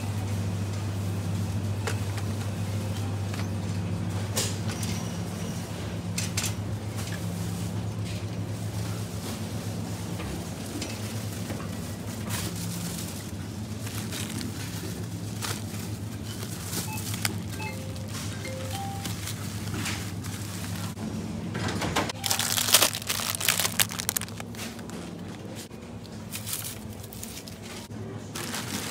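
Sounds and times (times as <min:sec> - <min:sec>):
refrigerator hum: 0:00.0 - 0:28.9
shopping cart rattling: 0:10.6 - 0:21.0, 0:22.0 - 0:25.6, 0:26.2 - 0:28.9.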